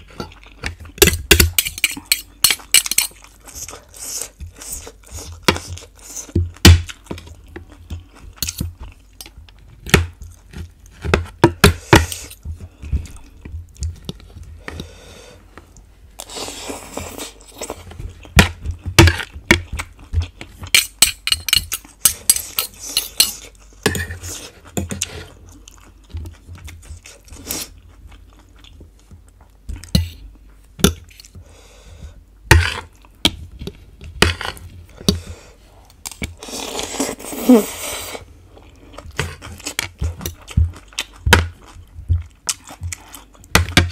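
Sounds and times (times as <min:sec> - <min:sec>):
cutlery clinking and scraping on plate: 0:01.0 - 0:03.2, 0:20.8 - 0:25.1
crunchy chewing: 0:35.8 - 0:43.6.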